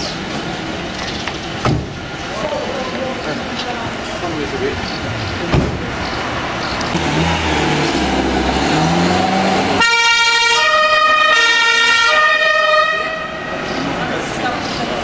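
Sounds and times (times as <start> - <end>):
police car engine accelerating: 3.4 - 11.8
two-tone siren: 9.8 - 13.6.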